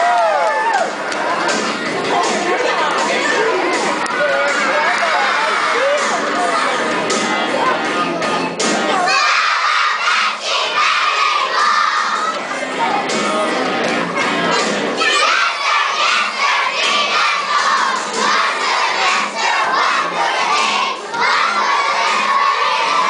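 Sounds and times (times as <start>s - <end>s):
children shouting: 2.0s - 7.0s, 8.9s - 13.1s, 14.2s - 23.0s.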